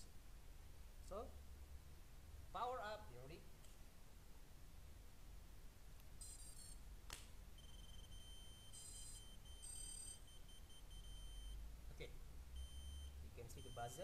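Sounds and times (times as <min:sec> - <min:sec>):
buzzer tone and beeps: 0:06.2 - 0:06.8, 0:07.6 - 0:11.6, 0:12.6 - 0:14.0.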